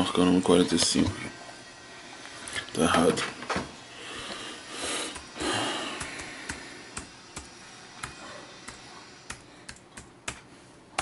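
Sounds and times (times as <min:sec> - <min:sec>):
person breathing out heavily: 0:03.9 - 0:06.9.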